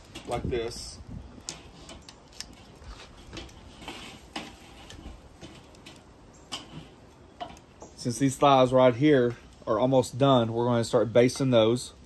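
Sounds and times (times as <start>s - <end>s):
metal tongs clicking on grill grate: 1.4s - 2.7s, 3.3s - 7.7s.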